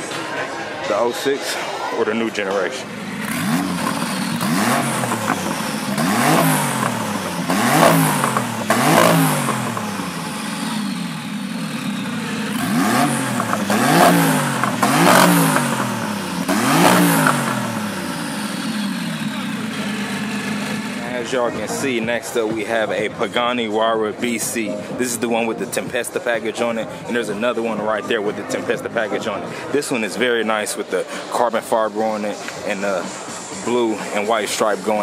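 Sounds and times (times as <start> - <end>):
car engine throttle blips: 2.7 - 23.3.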